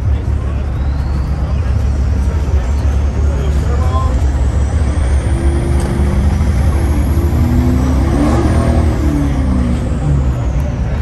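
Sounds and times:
truck engine rumbling: 0.0s - 11.0s.

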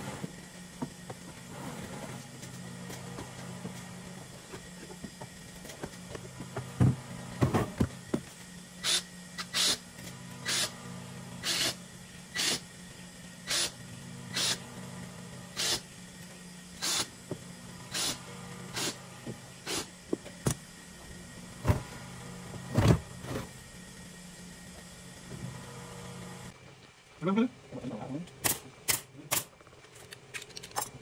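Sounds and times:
steady low hum: 0.0s - 31.0s
power tool hissing bursts: 8.8s - 9.8s, 11.4s - 12.7s, 13.4s - 14.6s, 15.5s - 15.9s, 16.8s - 17.2s, 17.8s - 20.0s.

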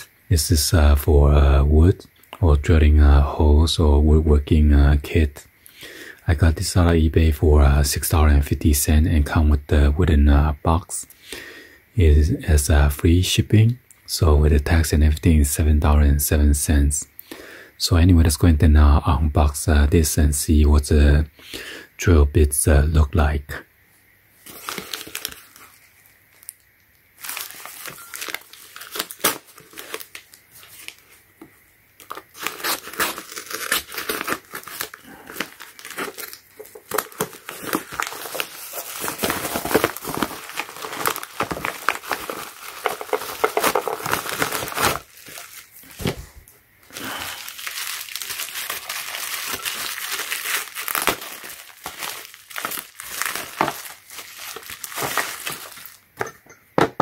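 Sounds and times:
bubble wrap rustling: 24.4s - 26.6s, 27.2s - 31.3s, 32.0s - 56.0s
plastic envelope tearing and crinkling: 24.4s - 26.6s, 27.2s - 31.2s, 32.0s - 46.3s, 46.9s - 56.0s.

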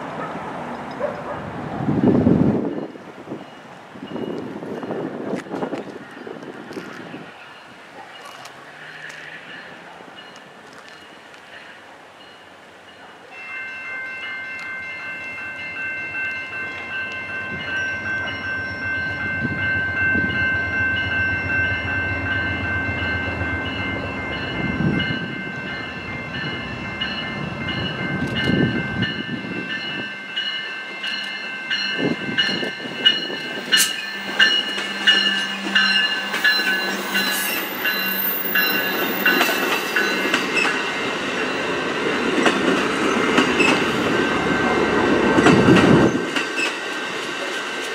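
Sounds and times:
train wheels clattering over rail joints: 42.0s - 44.1s.

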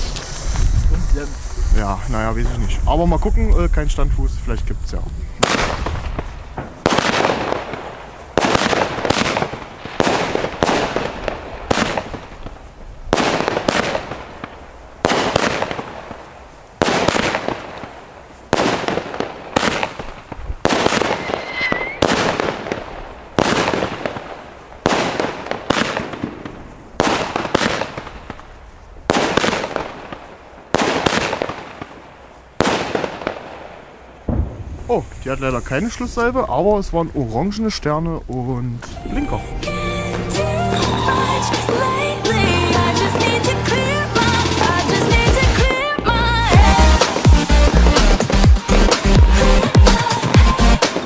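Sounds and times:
firework battery bangs: 0.0s - 3.7s, 5.4s - 36.3s.

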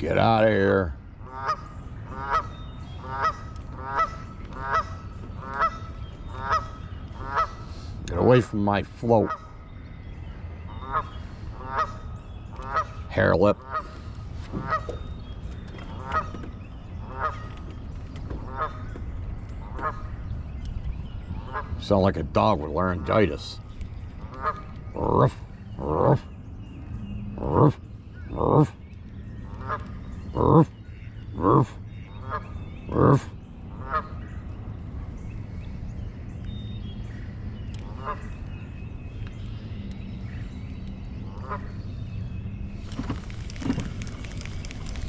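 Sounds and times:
goose honking: 1.2s - 7.7s.

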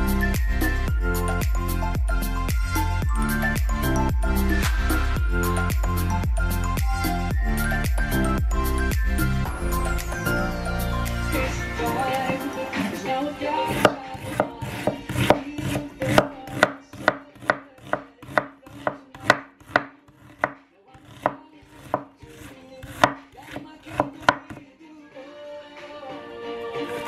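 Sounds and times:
knife chopping on cutting board: 13.7s - 24.6s.

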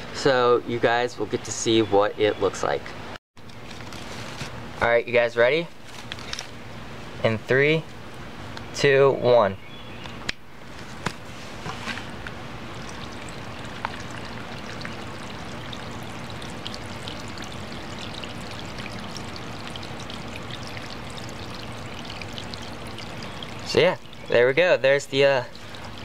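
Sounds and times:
water trickling down rocks: 12.2s - 26.0s.

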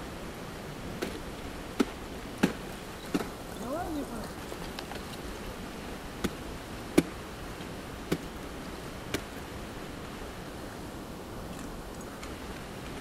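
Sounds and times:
steady hiss: 0.0s - 13.0s
ice axe striking ice: 1.0s - 3.4s.

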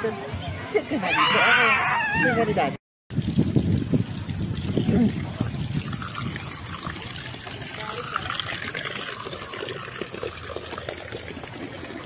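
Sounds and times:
water trickling and splashing: 3.1s - 12.0s.

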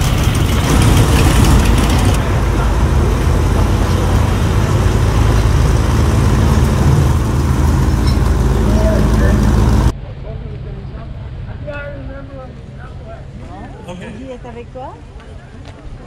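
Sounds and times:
car engines driving slowly past: 0.0s - 11.6s.

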